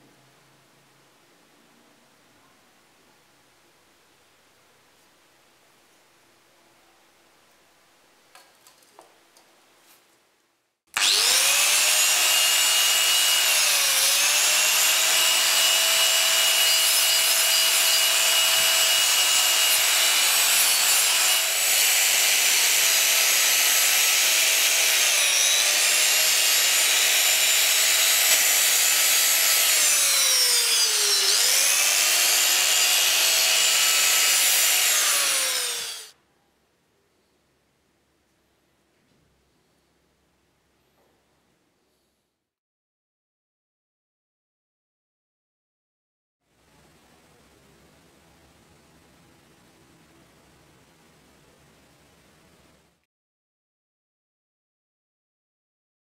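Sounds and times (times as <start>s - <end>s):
electric polisher motor whine: 11.0s - 36.1s.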